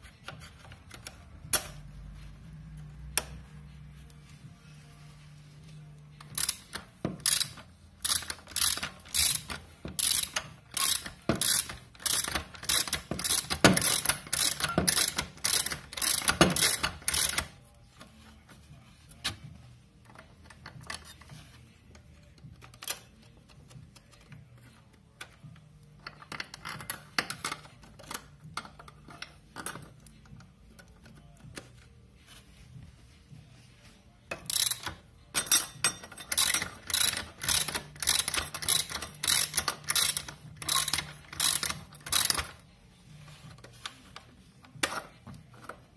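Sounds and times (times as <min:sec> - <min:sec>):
ratcheting metal clicks: 0:06.2 - 0:17.6, 0:20.0 - 0:21.4, 0:22.0 - 0:24.4, 0:25.2 - 0:31.9, 0:34.3 - 0:42.7
metal plates clinking: 0:35.3 - 0:36.7.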